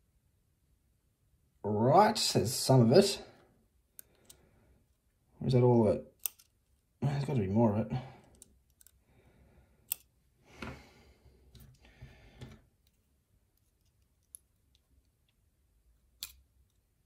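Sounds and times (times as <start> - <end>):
sharp metallic clicks: 6.2 - 6.5.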